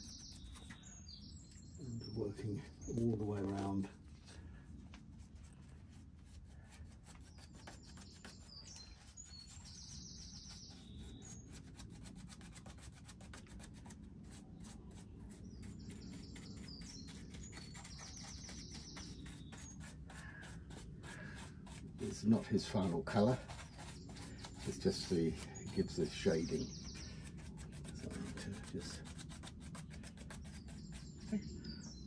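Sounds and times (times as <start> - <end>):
bird singing: 0.0 - 3.9, 7.2 - 11.6, 14.6 - 20.8, 22.0 - 29.0, 30.3 - 32.0
paintbrush scratching on surface: 0.0 - 4.2, 4.9 - 31.4.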